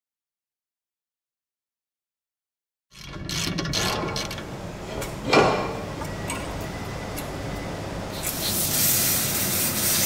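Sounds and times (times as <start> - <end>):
mechanical ticking and clicks: 2.9 - 5.1.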